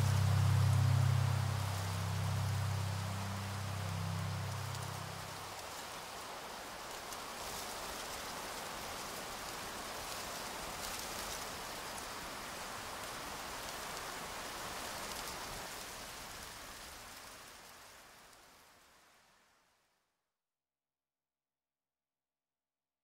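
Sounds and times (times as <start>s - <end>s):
steady hiss: 0.0s - 19.3s.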